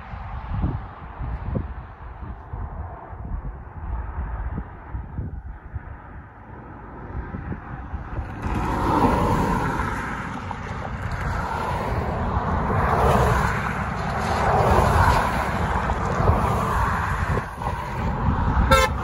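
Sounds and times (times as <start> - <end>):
wind on microphone: 0.0 - 19.0
cars driving over railroad crossing: 6.3 - 19.0.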